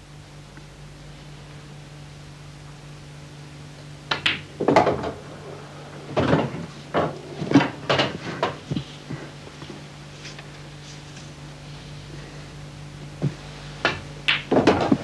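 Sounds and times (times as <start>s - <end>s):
low steady hum: 0.0s - 15.0s
pool balls knocking: 4.1s - 9.2s, 13.2s - 15.0s.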